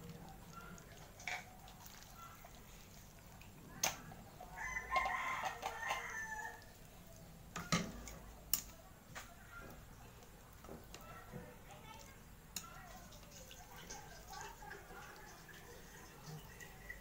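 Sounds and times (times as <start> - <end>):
rooster crowing: 4.5 - 6.7.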